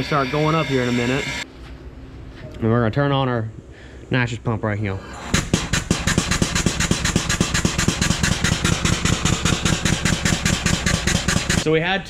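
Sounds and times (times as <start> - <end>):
air pump chugging: 5.2 - 11.7.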